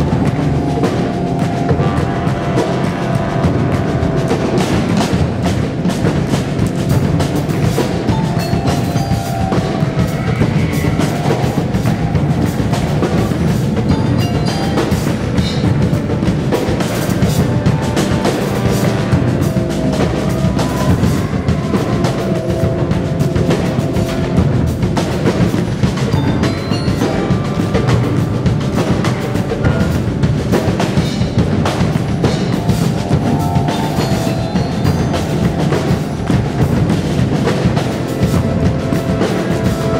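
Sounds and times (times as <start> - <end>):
drum kit playing: 0.0 - 39.9
marimbas: 0.0 - 39.9.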